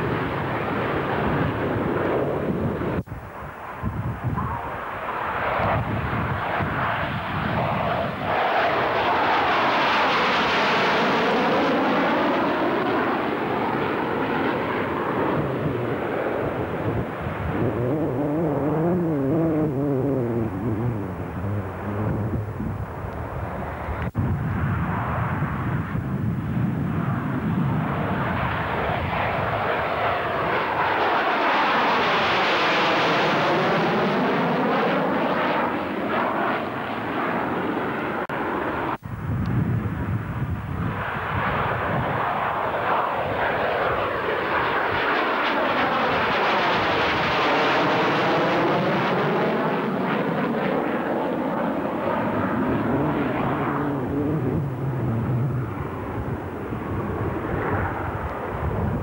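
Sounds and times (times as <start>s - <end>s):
jet flying by: 0.0s - 59.0s.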